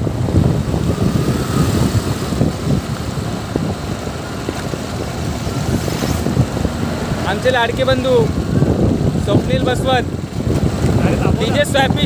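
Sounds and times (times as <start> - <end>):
road and engine noise: 0.0 - 12.0
wind buffeting microphone: 0.0 - 12.0.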